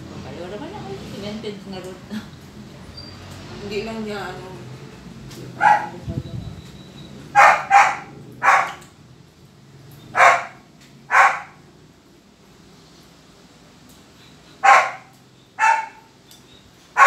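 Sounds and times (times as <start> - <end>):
dog barking: 5.6 - 6.0, 7.3 - 8.9, 10.1 - 11.6, 14.6 - 16.1.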